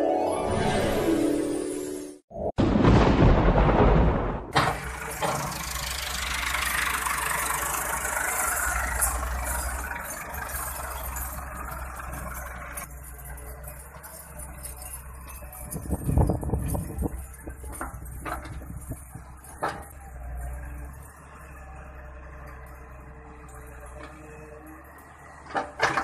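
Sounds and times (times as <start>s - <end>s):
loud crash of noise: 2.5s - 5.6s
diesel engines running: 4.5s - 26.0s.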